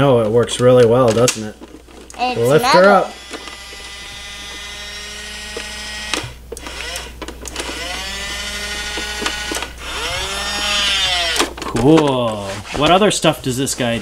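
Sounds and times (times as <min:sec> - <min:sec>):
toy truck motor whirring: 0:02.1 - 0:12.8.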